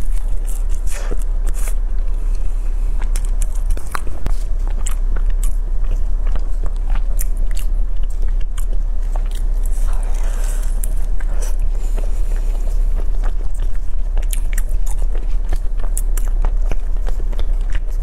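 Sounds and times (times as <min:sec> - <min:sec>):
bite into pastry: 0:00.0 - 0:02.4
chewing with wet mouth clicks: 0:00.0 - 0:02.4, 0:03.0 - 0:18.0
low hum: 0:00.0 - 0:18.0.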